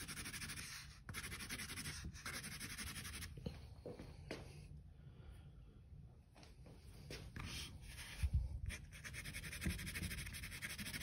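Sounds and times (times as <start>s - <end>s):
pencil scratching on paper: 0.0s - 3.3s, 7.4s - 11.0s.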